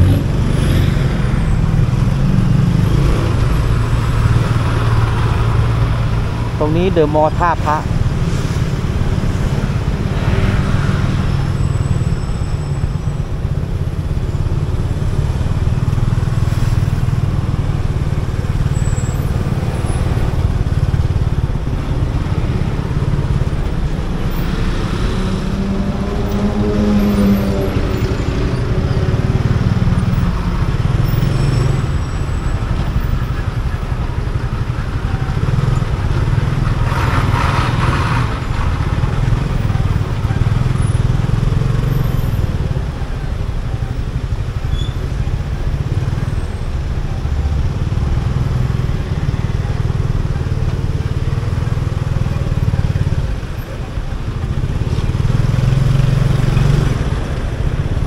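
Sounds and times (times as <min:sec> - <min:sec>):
motorcycle engine and road rumble: 0:00.0 - 0:58.0.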